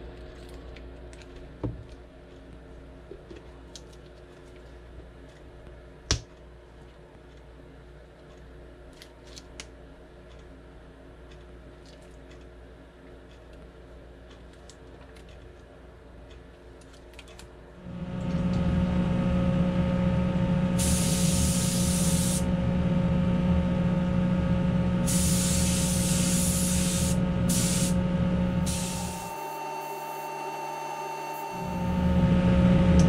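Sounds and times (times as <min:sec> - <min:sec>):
steady machine hum: 0:17.5 - 0:33.0
paint spray gun hissing: 0:20.8 - 0:22.5, 0:25.0 - 0:28.0, 0:28.6 - 0:29.3.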